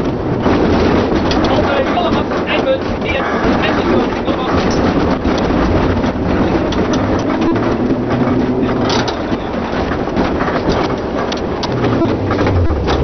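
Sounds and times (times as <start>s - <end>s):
tram rolling on rails: 0.0s - 13.0s
wheel clicks and rattles: 0.0s - 13.0s.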